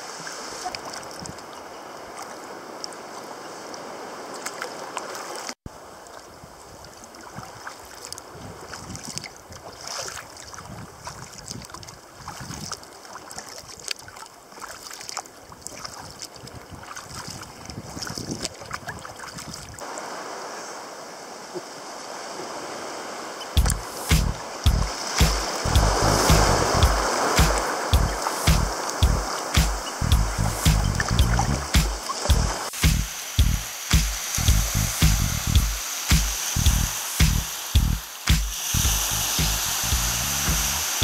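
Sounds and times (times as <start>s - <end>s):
water lapping against kayak: 0.0s - 20.2s, 21.5s - 30.0s
wind on microphone: 10.6s - 12.8s, 16.4s - 19.8s, 23.6s - 41.0s.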